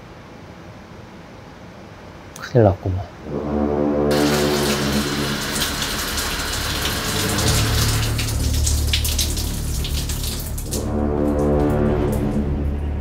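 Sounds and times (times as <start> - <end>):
low steady hum: 0.0 - 13.0
shower water spraying: 4.1 - 12.4.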